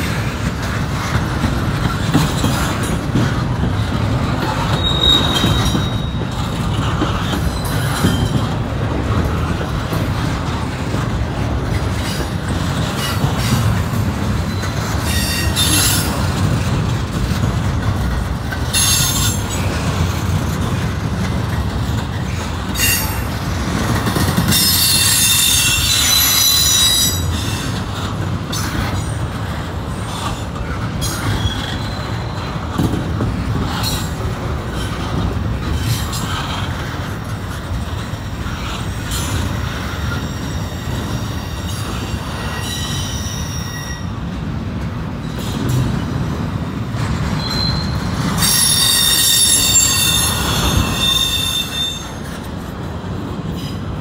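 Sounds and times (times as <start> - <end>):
train wheels rumbling on rail: 0.0 - 54.0
wheel flange squeal: 4.5 - 6.4, 47.4 - 52.2.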